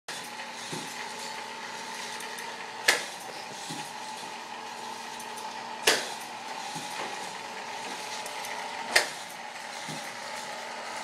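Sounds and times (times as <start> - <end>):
chain-lift motor whirring: 0.1 - 11.0
sharp click: 2.8 - 3.1, 5.8 - 6.2.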